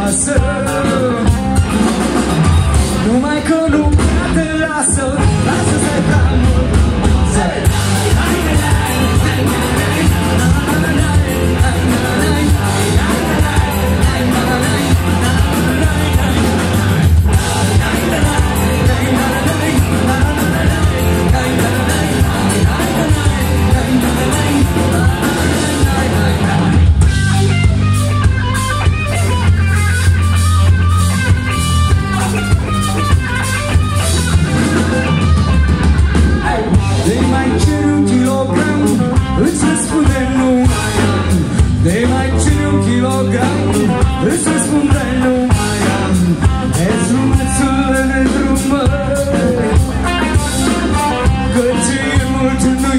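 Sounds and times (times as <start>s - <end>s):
man singing: 0.0s - 2.1s, 2.8s - 27.6s, 36.1s - 52.9s
bass guitar: 0.0s - 52.9s
drum kit: 0.0s - 52.9s
electric guitar: 0.0s - 52.9s.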